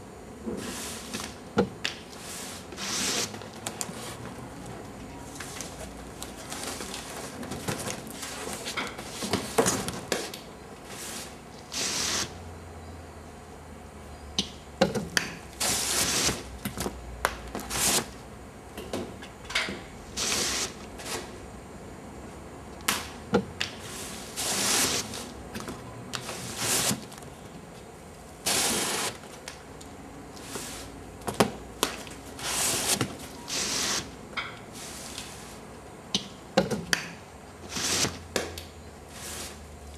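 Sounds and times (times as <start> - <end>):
cardboard rubbing and scraping: 2.2 - 4.3, 24.0 - 25.3, 26.3 - 27.1, 28.4 - 29.2, 32.4 - 34.1, 37.7 - 38.2.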